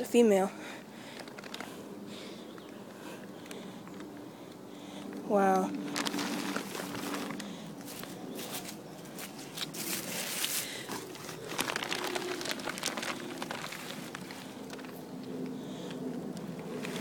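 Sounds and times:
plastic tarp rustling: 1.2s - 1.8s, 5.4s - 15.1s.

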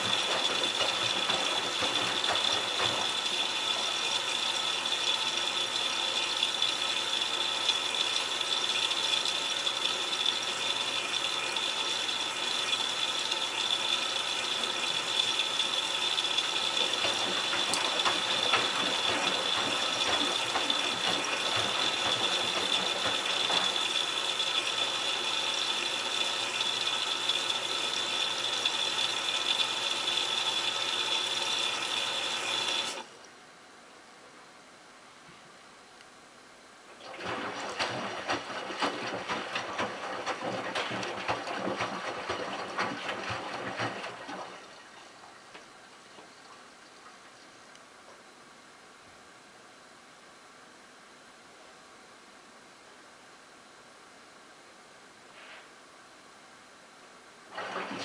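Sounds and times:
water sloshing in washing machine: 0.0s - 33.1s, 36.9s - 47.5s, 57.5s - 58.0s.

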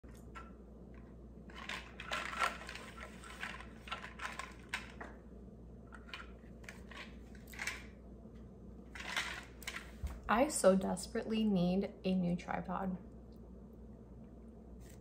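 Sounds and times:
straw stirring iced coffee: 1.5s - 5.0s.

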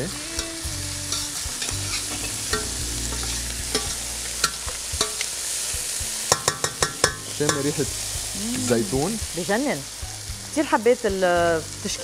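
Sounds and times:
chicken sizzling in a frying pan: 0.0s - 12.0s
utensils clicking against pans: 6.3s - 7.8s.

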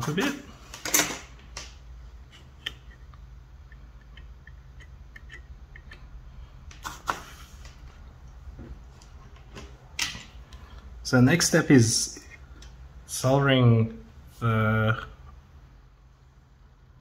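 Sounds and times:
steady low hum: 0.0s - 17.0s
metal clicks and taps: 2.6s - 6.1s.

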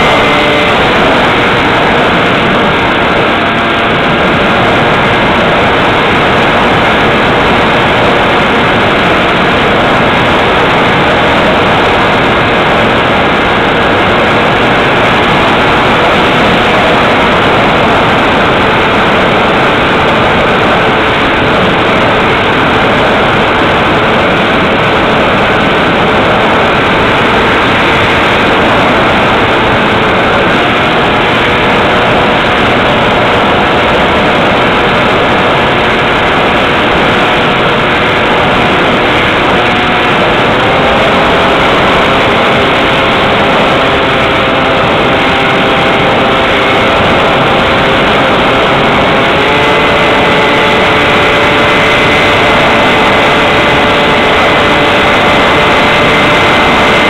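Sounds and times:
electric motor propeller whine: 0.0s - 57.0s
wind rush: 0.0s - 57.0s.

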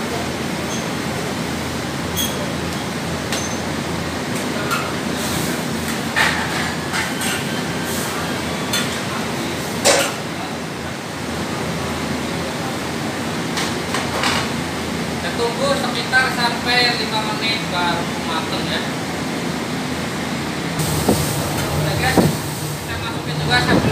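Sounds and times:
gas burner rushing: 20.7s - 23.9s.

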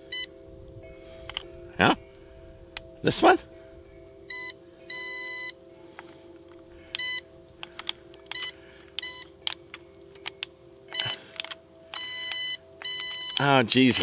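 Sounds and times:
electronic beeps: 0.0s - 2.0s, 4.2s - 5.6s, 6.9s - 7.4s, 8.2s - 14.0s
faint steady hum: 0.0s - 14.0s.

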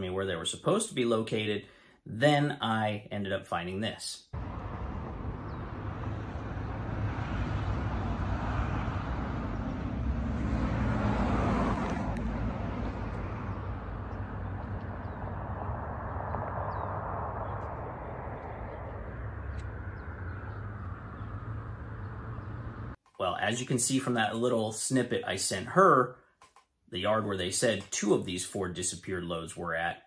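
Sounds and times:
vehicle passing: 4.4s - 23.0s
road traffic rumble: 4.4s - 24.5s.

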